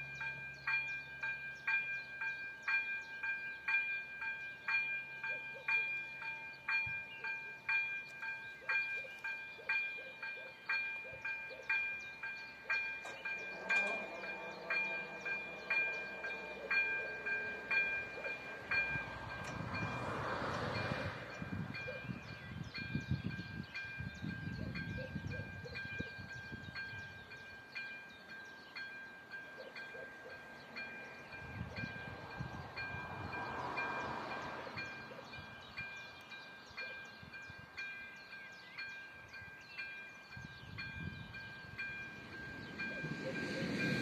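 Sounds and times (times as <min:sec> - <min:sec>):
level crossing warning bell: 0:00.0 - 0:44.0.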